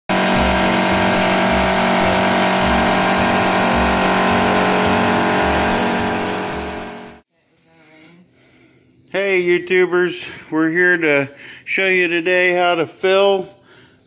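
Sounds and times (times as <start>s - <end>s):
wood lathe droning: 0.0s - 7.2s.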